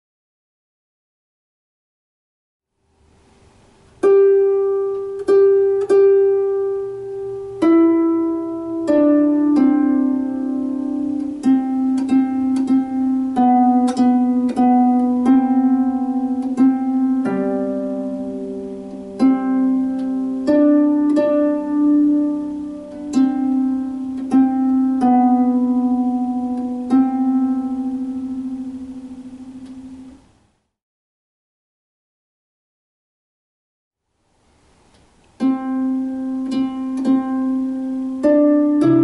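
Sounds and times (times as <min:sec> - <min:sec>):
harp plucked melody: 0:03.8 - 0:30.3, 0:35.3 - 0:39.0.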